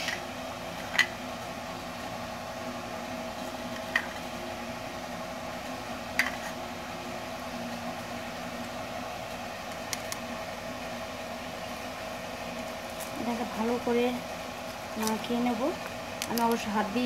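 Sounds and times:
steady fan hum: 0:00.0 - 0:17.0.

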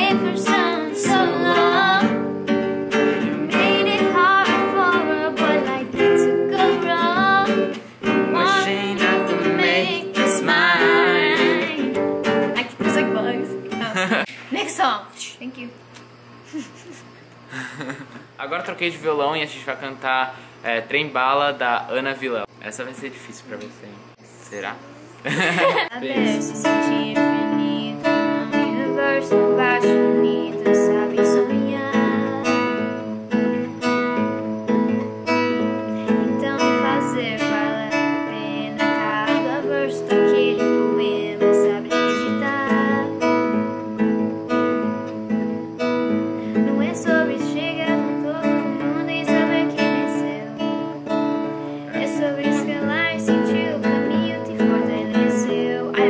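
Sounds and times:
woman singing a ballad: 0:00.0 - 0:02.3, 0:03.0 - 0:12.0, 0:25.9 - 0:33.0, 0:36.0 - 0:43.7, 0:46.4 - 0:50.9, 0:51.9 - 0:56.0
classical guitar strumming: 0:00.0 - 0:14.3, 0:25.8 - 0:56.0.

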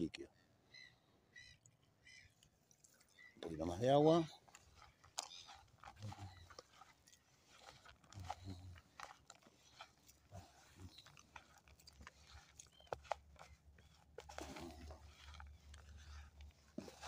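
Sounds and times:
hands kneading crunchy dough: 0:04.2 - 0:17.0.

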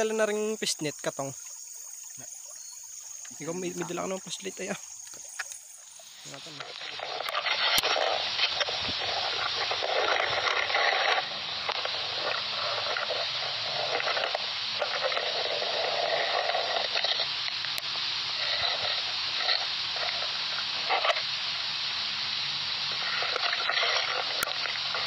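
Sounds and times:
wading through shallow water: 0:00.0 - 0:17.4, 0:22.6 - 0:25.0.

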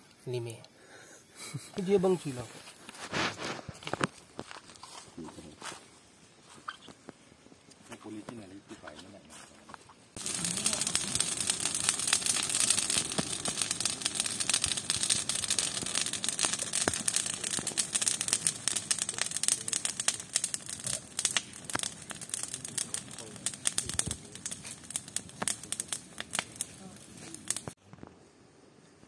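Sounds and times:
bonfire crackling and popping: 0:01.4 - 0:28.2.

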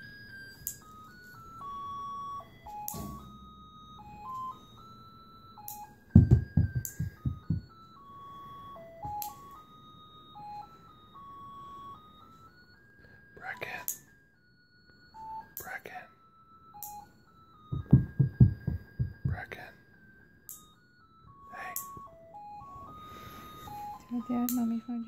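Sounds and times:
simple electronic tune: 0:00.0 - 0:12.8, 0:16.3 - 0:19.7, 0:20.7 - 0:25.0
loud low thumps: 0:17.8 - 0:19.4.

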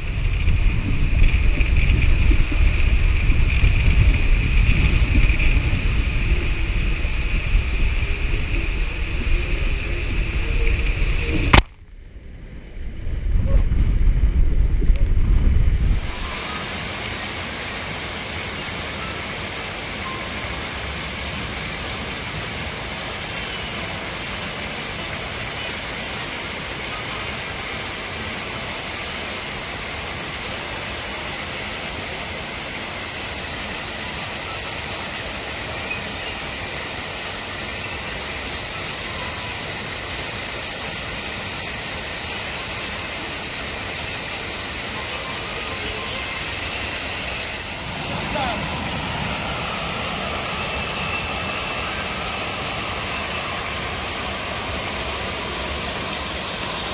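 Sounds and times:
muffled underwater rumbling: 0:00.0 - 0:16.3
flowing water rushing: 0:00.0 - 0:56.9.

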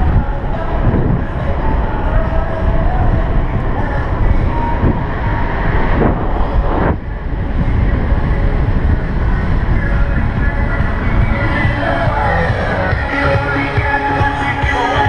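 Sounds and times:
wind buffeting microphone: 0:00.0 - 0:14.8
bicycle road rumble: 0:00.0 - 0:15.0
sweeping swish: 0:02.5 - 0:08.9.

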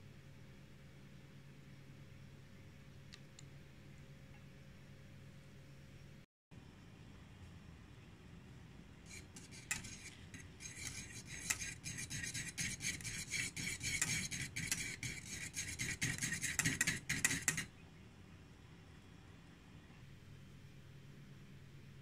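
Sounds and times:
utensil stirring in metal pot: 0:09.0 - 0:17.7.

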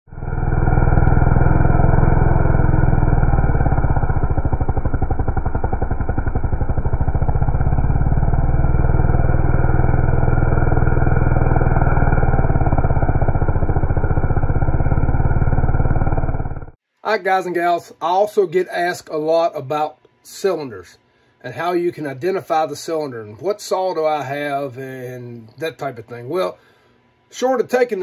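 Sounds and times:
chainsaw cutting log: 0:00.2 - 0:16.7.

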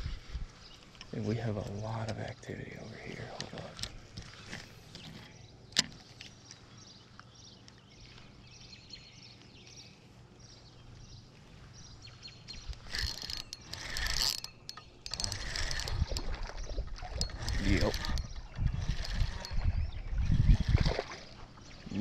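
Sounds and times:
fishing reel mechanical noise: 0:12.6 - 0:21.2.

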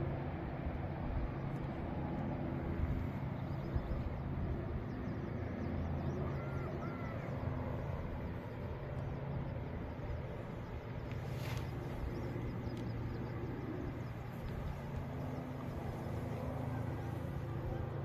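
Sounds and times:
distant road traffic rumble: 0:00.0 - 0:18.0
short bird calls: 0:06.2 - 0:07.3.

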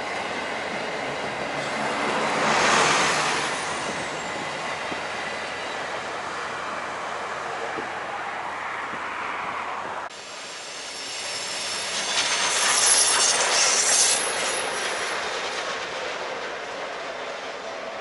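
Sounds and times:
train wheels on rails: 0:00.0 - 0:08.1, 0:08.8 - 0:18.0
passenger train passing: 0:00.0 - 0:18.0
high-pitched wheel squeal: 0:10.4 - 0:15.7.

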